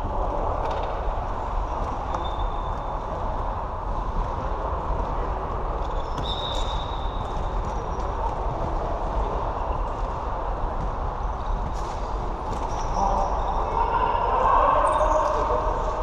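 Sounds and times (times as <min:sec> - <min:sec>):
running feet: 0:01.2 - 0:13.1.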